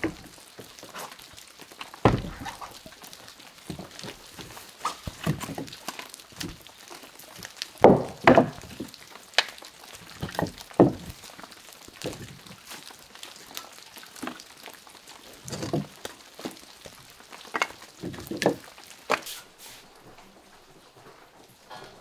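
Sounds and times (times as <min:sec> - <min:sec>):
objects knocking and thudding: 0:00.0 - 0:01.0, 0:01.9 - 0:03.0, 0:03.6 - 0:09.0, 0:10.0 - 0:12.8, 0:15.4 - 0:19.3.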